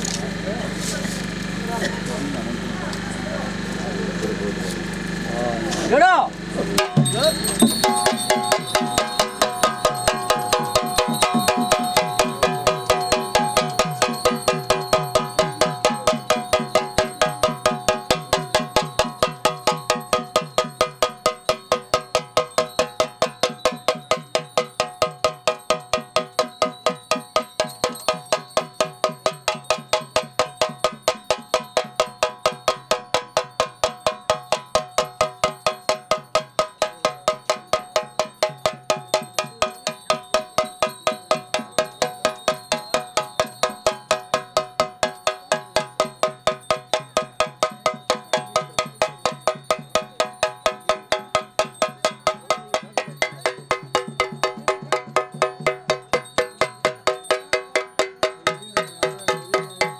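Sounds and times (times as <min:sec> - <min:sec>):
drum beaten with a stick: 0:06.0 - 0:59.9.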